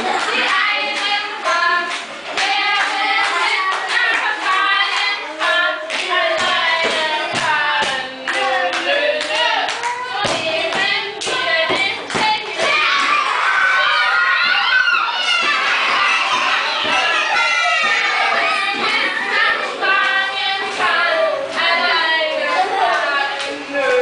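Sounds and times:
children singing together: 0.0 - 24.0.

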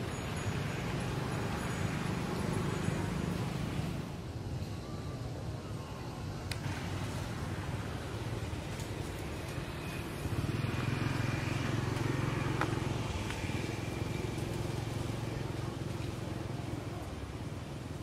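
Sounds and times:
motor vehicle passing: 6.7 - 16.8.

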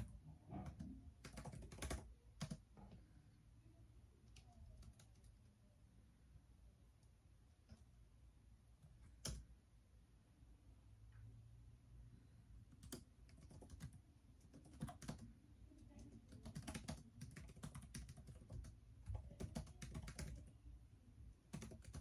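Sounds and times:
typing on laptop keyboard: 0.0 - 3.0, 4.2 - 5.5, 8.8 - 9.5, 12.7 - 20.6, 21.5 - 22.0.

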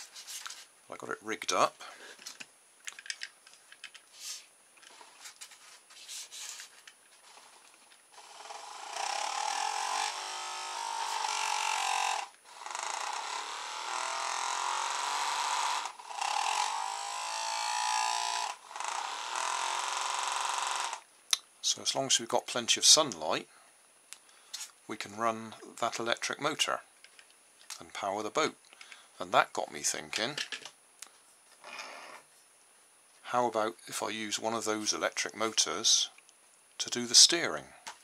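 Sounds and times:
small motor whirring: 7.2 - 21.0.

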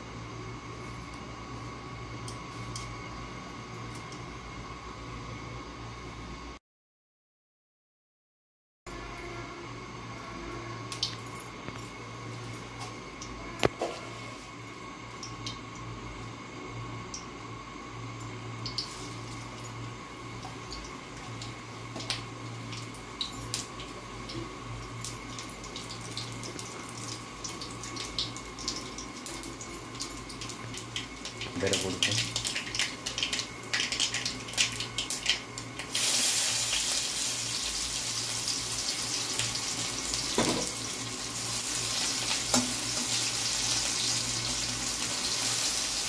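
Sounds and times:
spices crackling in hot oil: 15.2 - 46.0.

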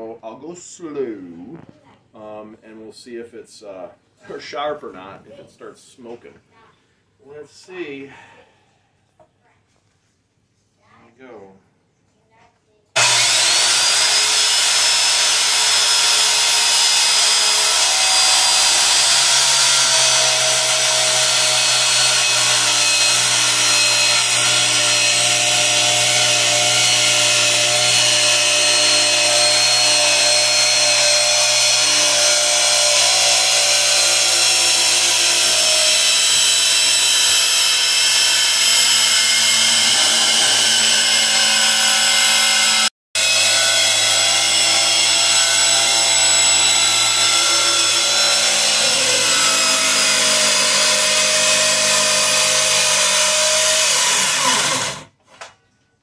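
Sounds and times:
circular saw cutting wood: 13.0 - 55.1.

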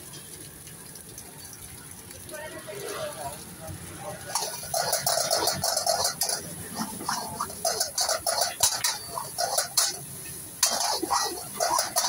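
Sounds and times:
metal ladle scraping a wok: 4.3 - 12.0.

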